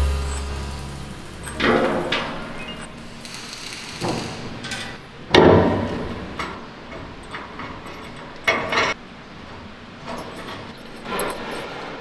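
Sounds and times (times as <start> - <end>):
metal clanking: 0.0 - 3.1.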